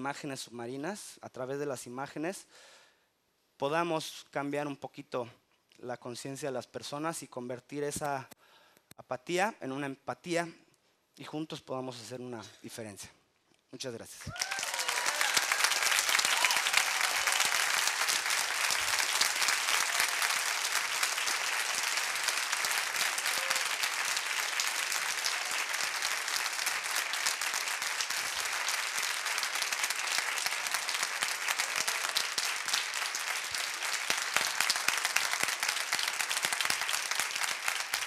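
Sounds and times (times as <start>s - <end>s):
audience applauding: 14.3s - 38.0s.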